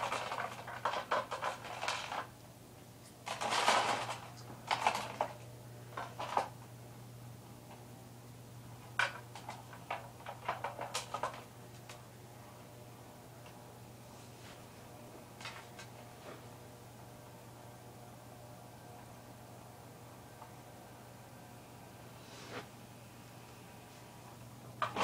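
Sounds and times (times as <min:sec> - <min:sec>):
clicks and clatter: 0:00.0 - 0:02.3, 0:03.0 - 0:06.6, 0:08.8 - 0:12.0
steady low hum: 0:00.0 - 0:25.0.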